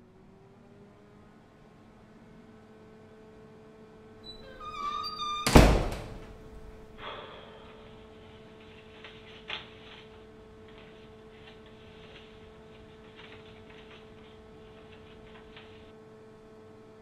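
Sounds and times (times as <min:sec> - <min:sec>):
door hinges squeaking: 0:04.2 - 0:07.0
door banging shut: 0:04.3 - 0:07.0
paper rustling: 0:08.6 - 0:15.9.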